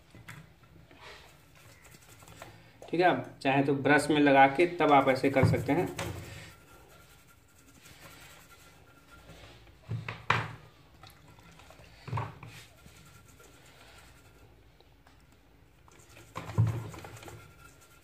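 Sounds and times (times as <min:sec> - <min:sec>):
toothbrush scrubbing: 0:01.0 - 0:02.7, 0:04.8 - 0:09.6, 0:11.2 - 0:14.6, 0:15.8 - 0:18.0.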